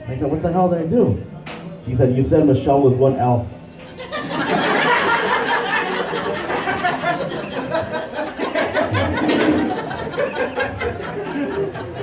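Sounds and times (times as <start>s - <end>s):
audience laughing: 3.8s - 12.0s.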